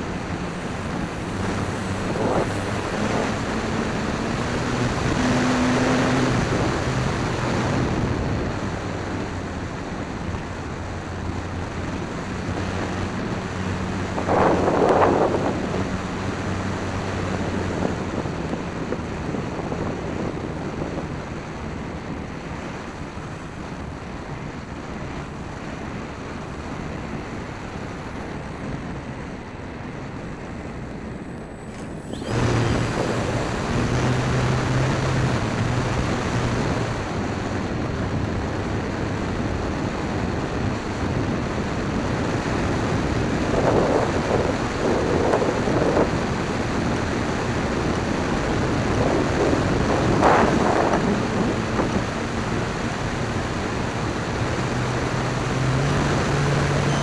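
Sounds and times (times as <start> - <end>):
wind on microphone: 0.0 - 57.0
model plane motor drone: 28.6 - 37.1, 43.0 - 57.0.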